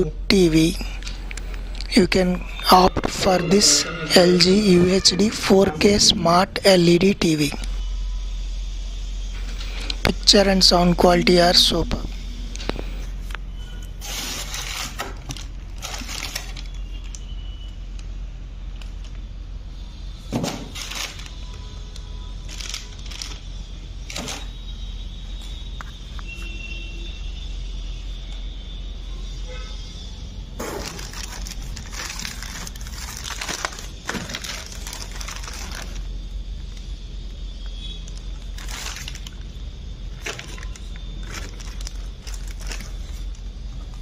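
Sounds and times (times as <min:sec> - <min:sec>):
foam packing creaking: 0:00.9 - 0:06.2, 0:11.4 - 0:17.6, 0:20.3 - 0:21.5, 0:30.5 - 0:36.1, 0:38.1 - 0:39.5, 0:40.1 - 0:44.0
plastic bags crinkling: 0:14.0 - 0:17.2, 0:20.6 - 0:21.4, 0:22.4 - 0:24.5, 0:30.6 - 0:36.1, 0:38.3 - 0:43.4.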